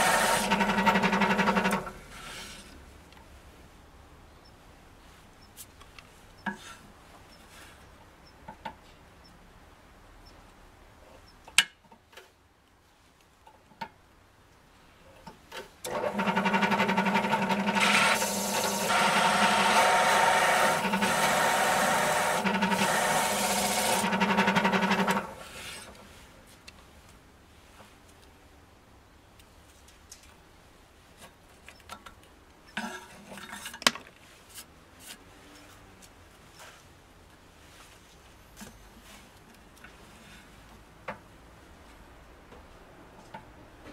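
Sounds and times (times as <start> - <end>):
drill press grinding whir: 0.0 - 2.5, 15.9 - 26.0.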